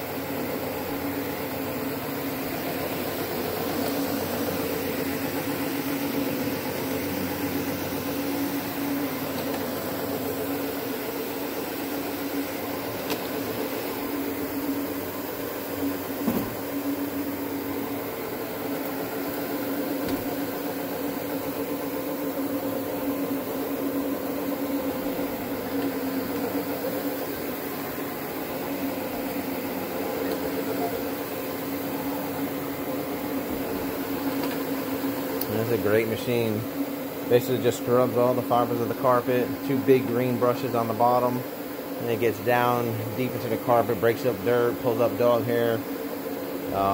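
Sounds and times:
carpet cleaning machine humming: 0.0 - 46.9.

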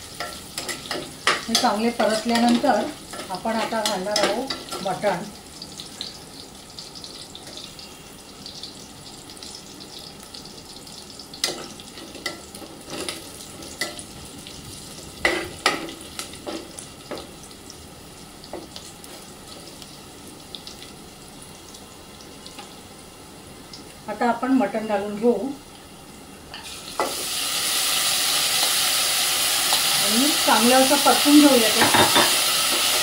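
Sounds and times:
food sizzling in hot oil: 0.0 - 33.0
spoon knocking against pot: 31.8 - 32.4.

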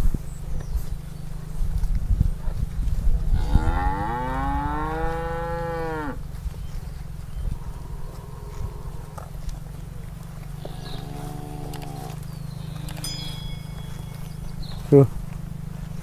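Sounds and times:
cow mooing: 3.4 - 6.2, 7.7 - 9.3, 10.5 - 13.1.

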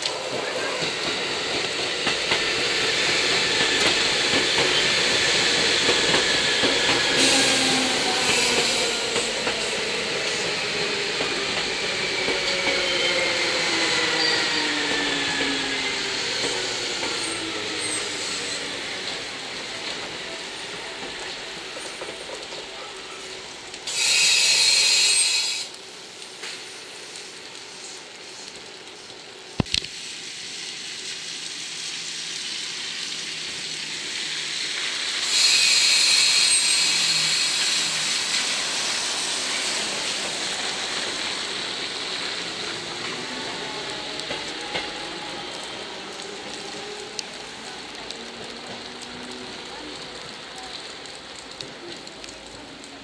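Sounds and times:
train moving slowly: 0.0 - 53.0
compressed air hiss: 23.9 - 25.8, 34.9 - 41.5.

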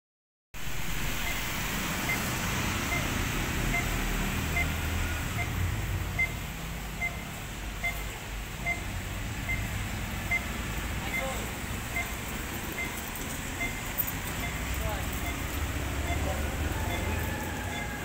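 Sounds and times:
crossing signal beeping: 0.6 - 18.0.

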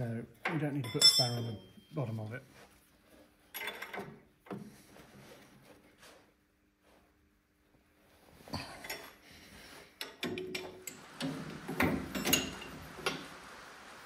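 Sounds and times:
spanner clinking on steel fittings: 10.0 - 13.3.

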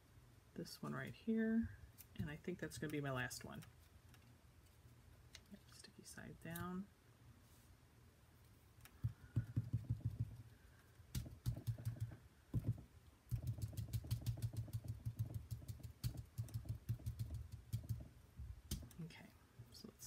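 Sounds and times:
foam dauber tapping on cardstock: 9.0 - 10.4.

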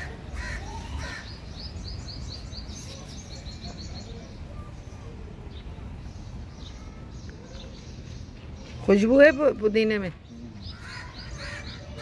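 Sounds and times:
crow cawing: 0.0 - 1.3, 10.7 - 12.0
low outdoor background noise: 0.0 - 12.0.

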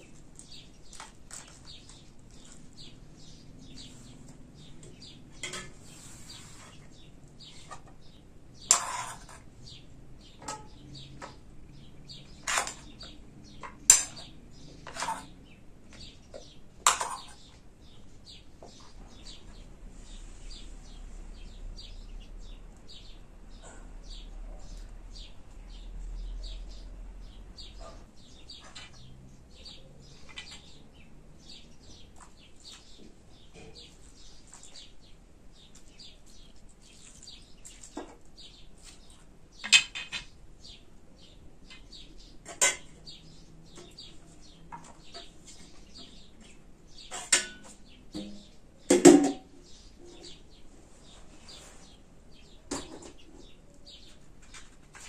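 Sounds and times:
small birds chirping: 0.0 - 55.0
metal cookware clanking: 5.4 - 5.8, 10.4 - 10.9, 42.4 - 43.0, 47.1 - 49.5.

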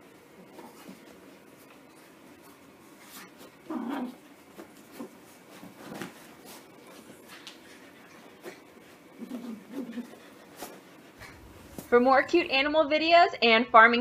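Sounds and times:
soft scuffs and rustles: 0.2 - 9.3, 10.0 - 12.1.

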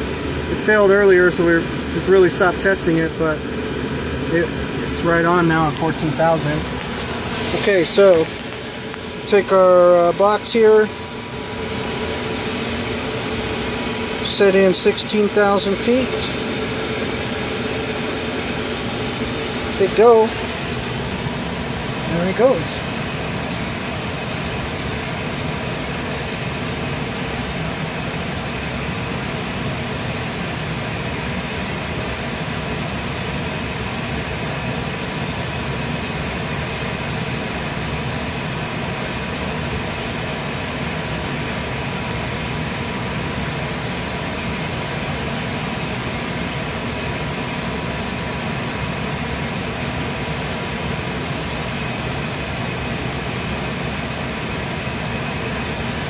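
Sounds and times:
faint constant tones: 0.0 - 27.2
mechanical hum and hiss: 0.0 - 56.0.

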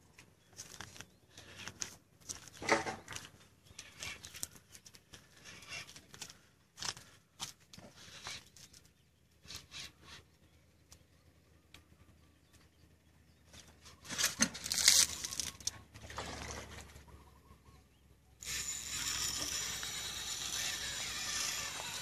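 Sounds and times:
fishing reel drag giving line: 18.4 - 22.0.

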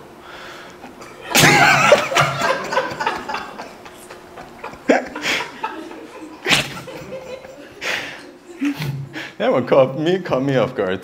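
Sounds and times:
small audience laughing: 0.8 - 9.4.

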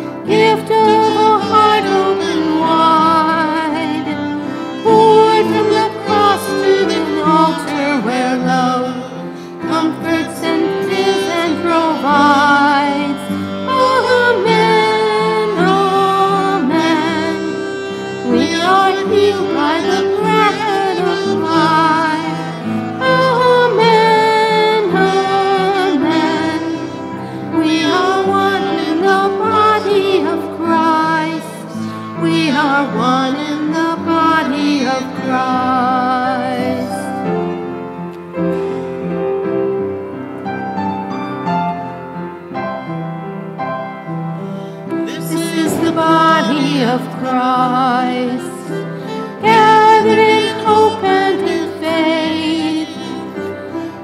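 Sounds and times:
instrumental accompaniment: 0.0 - 54.0
hymn sung with vibrato: 0.2 - 37.1, 45.0 - 54.0.

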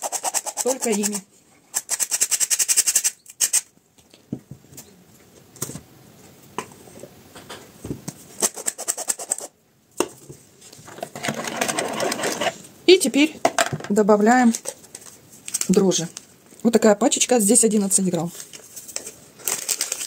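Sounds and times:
kitchenware knocks and taps: 13.4 - 13.9.

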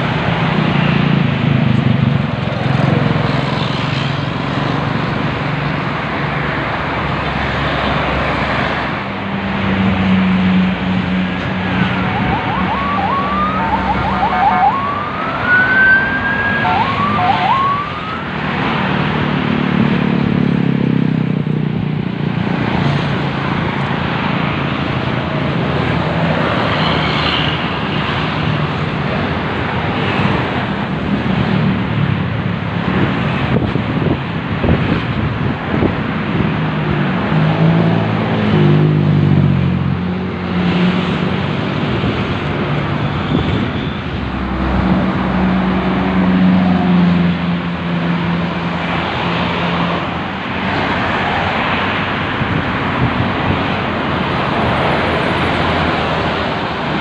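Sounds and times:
buses driving past: 0.0 - 57.0
traffic noise: 0.0 - 57.0
siren-like rising tones: 11.6 - 18.8.

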